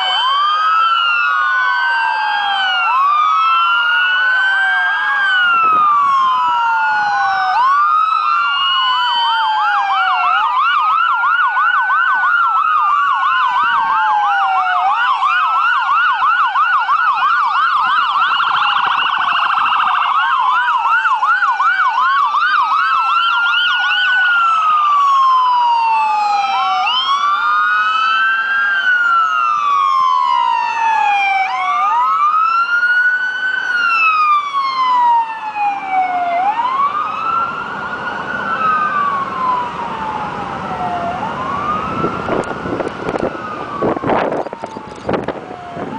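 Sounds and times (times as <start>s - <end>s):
police sirens wailing: 0.0s - 45.9s.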